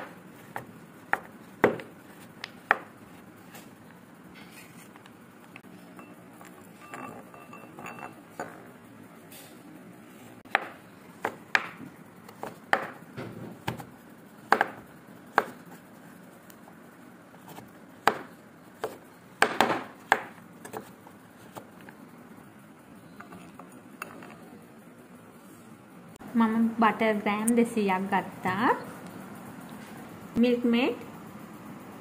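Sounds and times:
knife chopping chocolate on board: 0:00.0 - 0:02.9, 0:10.5 - 0:13.0, 0:14.5 - 0:15.6, 0:18.0 - 0:20.9.

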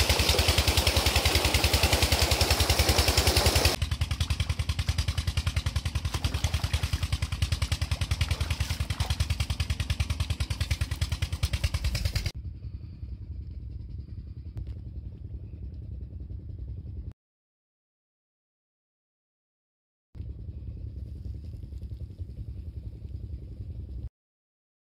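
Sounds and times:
water gushing and splashing: 0:00.0 - 0:03.8, 0:04.8 - 0:12.3.

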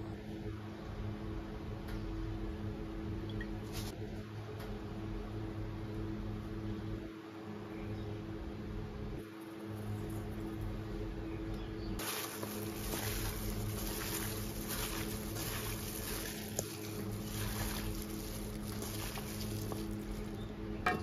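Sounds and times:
steady low hum: 0:00.0 - 0:21.0
gloved hand mixing wet food: 0:12.0 - 0:20.5.

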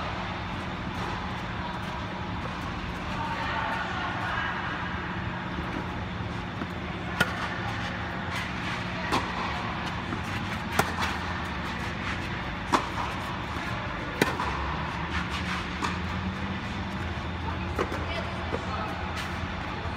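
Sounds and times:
tennis racket hitting ball: 0:06.6 - 0:07.8, 0:08.4 - 0:16.2.

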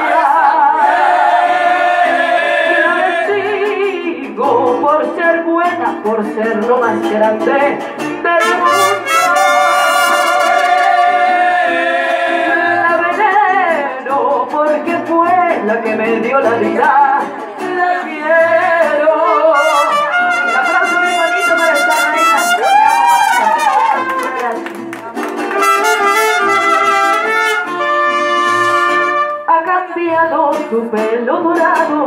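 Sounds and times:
mariachi band playing: 0:00.0 - 0:32.0
woman singing into a microphone: 0:02.7 - 0:09.0, 0:12.5 - 0:19.7, 0:29.5 - 0:32.0.

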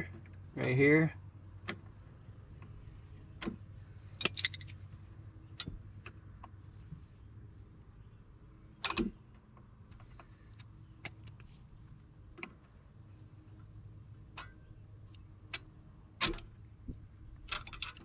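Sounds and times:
metal brake springs clinking: 0:04.1 - 0:04.8.

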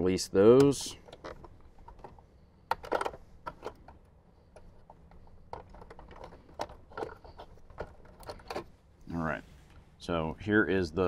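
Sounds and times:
handling rustle: 0:00.9 - 0:08.9.

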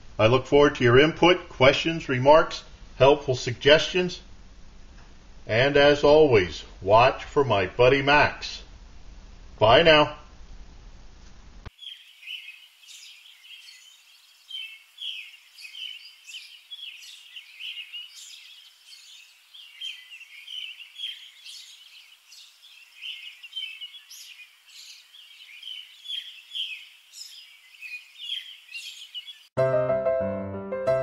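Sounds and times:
small birds chirping: 0:11.7 - 0:29.6.

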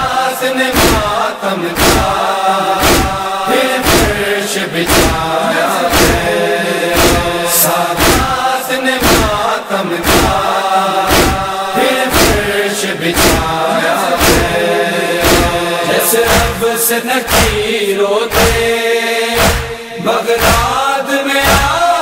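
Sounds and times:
men chanting in unison: 0:00.0 - 0:22.0
hands slapping on chests: 0:00.7 - 0:01.2, 0:01.8 - 0:04.2, 0:04.8 - 0:05.3, 0:05.9 - 0:06.3, 0:07.0 - 0:07.4, 0:08.0 - 0:08.4, 0:09.0 - 0:09.4, 0:10.0 - 0:10.5, 0:11.1 - 0:12.5, 0:13.1 - 0:14.6, 0:15.2 - 0:15.6, 0:16.2 - 0:16.6, 0:17.3 - 0:17.6, 0:18.3 - 0:18.7, 0:19.4 - 0:19.7, 0:20.4 - 0:20.7.

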